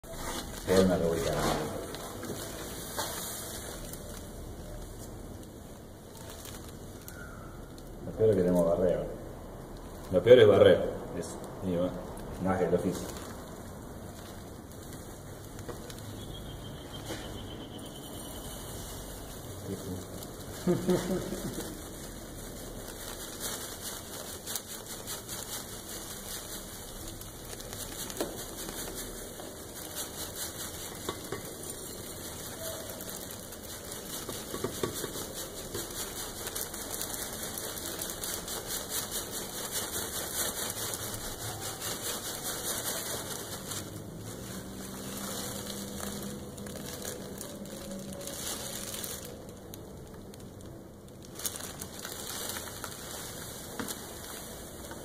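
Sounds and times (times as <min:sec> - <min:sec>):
grain pouring into metal pot: 0:17.8 - 0:48.3.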